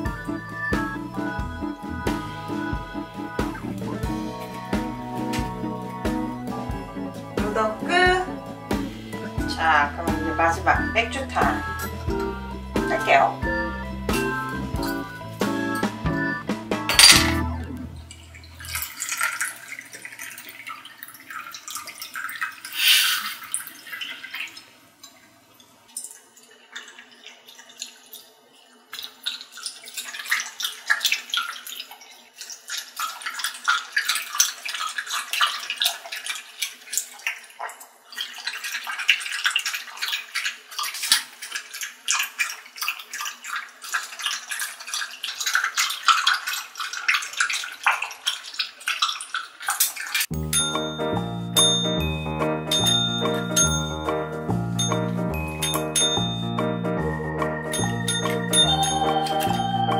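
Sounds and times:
dogs lapping: 0.0s - 17.4s, 26.0s - 59.6s
beer pouring into metal pot: 18.1s - 25.2s.

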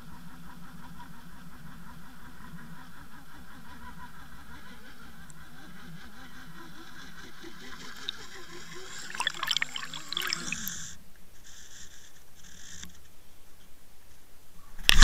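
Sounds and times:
underwater water noise: 7.4s - 10.9s
faint wavering hum: 7.5s - 10.8s.

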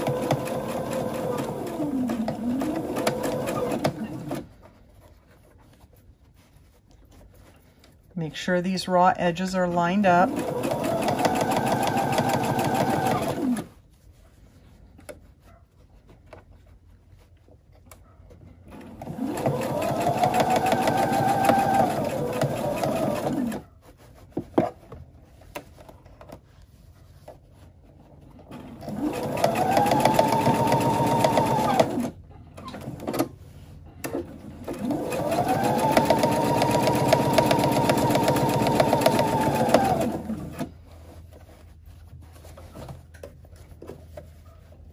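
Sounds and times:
electric sewing machine stitching: 0.0s - 4.5s, 10.2s - 13.7s, 18.7s - 23.6s, 28.5s - 32.2s, 34.1s - 40.7s.

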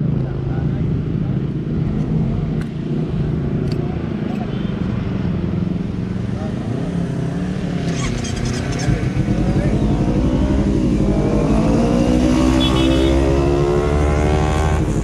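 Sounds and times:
motorcycle engine accelerating: 6.4s - 15.0s.

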